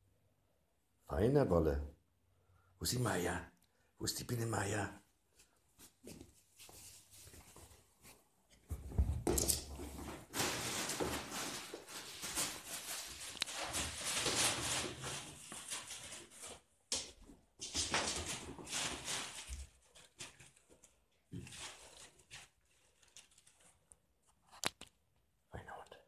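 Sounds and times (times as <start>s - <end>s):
wrapping paper crackling: 10.2s - 16.7s, 17.9s - 24.7s.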